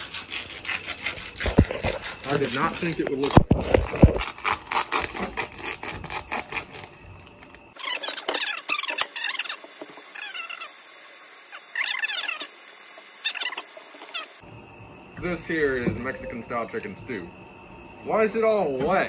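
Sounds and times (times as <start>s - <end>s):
plastic and foil pouches crinkling: 1.3s - 8.5s
short high squeaks: 7.8s - 14.4s.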